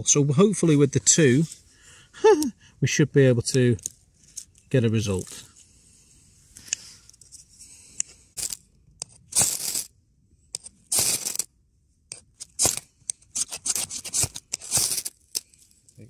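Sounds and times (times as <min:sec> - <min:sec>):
knife scraping ferrocerium rod: 0:12.1 - 0:15.6.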